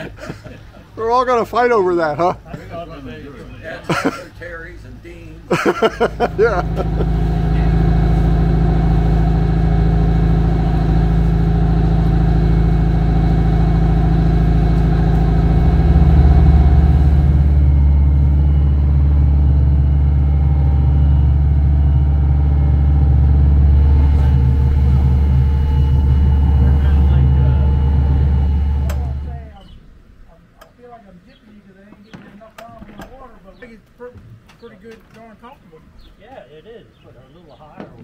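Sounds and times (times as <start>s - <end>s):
boat engine droning: 5.6s - 30.6s.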